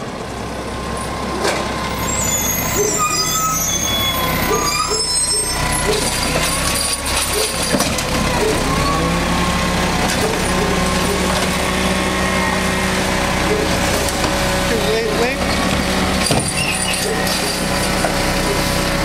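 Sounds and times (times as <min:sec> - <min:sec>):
garbage truck diesel engine: 0:00.0 - 0:19.0
wavering hydraulic whine: 0:01.4 - 0:06.6.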